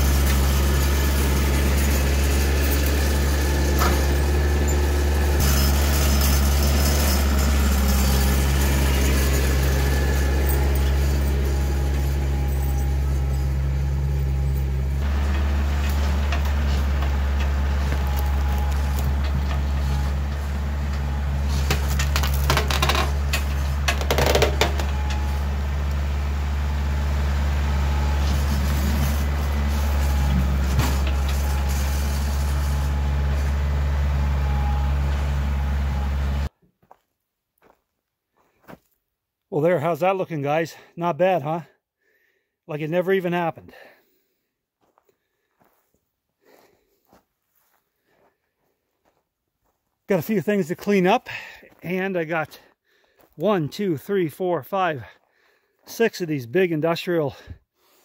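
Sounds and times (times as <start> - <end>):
loader knocks and scrapes: 0.0 - 36.5
tractor diesel engine running: 0.0 - 36.5.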